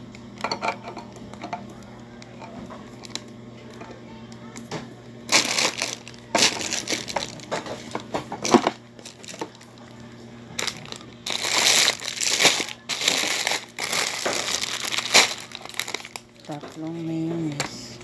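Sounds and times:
plastic packaging crinkling: 5.2s - 17.7s.

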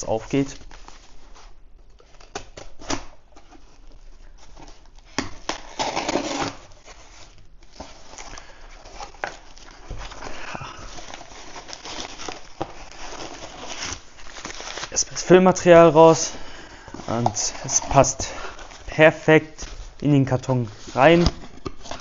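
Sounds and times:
tape tearing: 5.1s - 6.9s, 11.0s - 15.3s
knife slitting packing tape: 5.5s - 6.7s.

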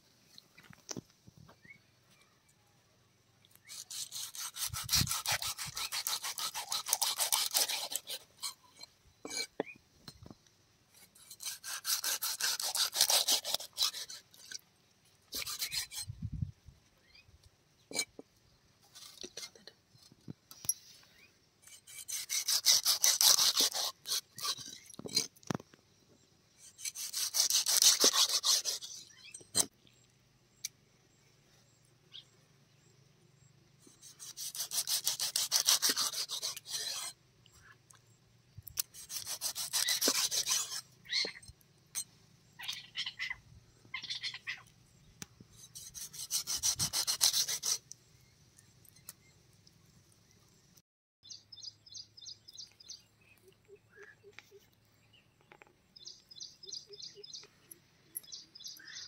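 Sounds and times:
knife scraping fish skin: 3.7s - 9.5s, 11.0s - 14.6s, 15.4s - 16.1s, 21.6s - 25.3s, 26.6s - 29.0s, 33.9s - 37.2s, 38.7s - 41.2s, 45.5s - 47.9s.

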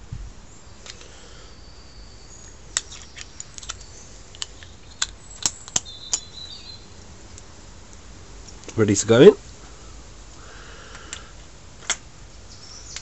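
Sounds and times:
small metal clicks and taps: 2.8s - 6.3s.

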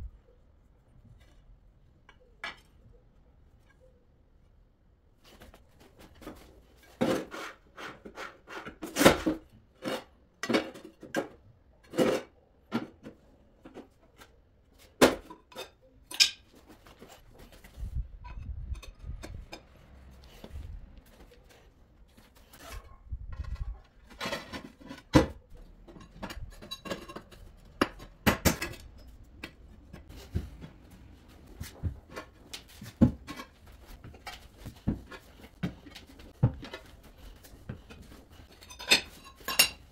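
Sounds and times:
tiles clinking and knocking: 6.1s - 20.4s, 23.3s - 39.9s.

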